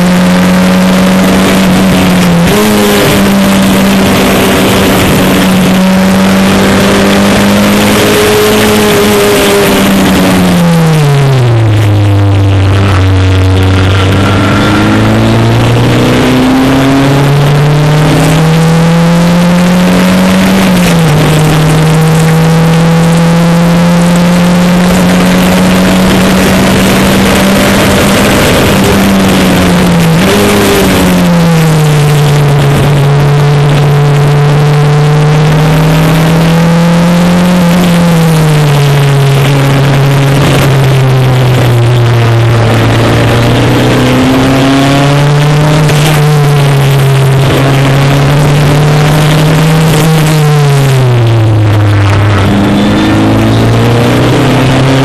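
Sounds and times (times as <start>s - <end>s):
racing car engine: 0.0s - 55.0s
wind and road noise: 0.0s - 55.0s.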